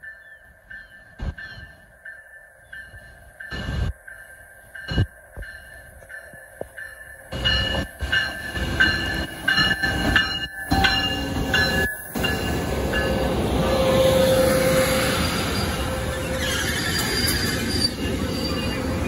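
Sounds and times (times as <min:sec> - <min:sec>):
train rumbling past: 0:00.0 - 0:19.0
wheel brake squeal: 0:13.7 - 0:19.0.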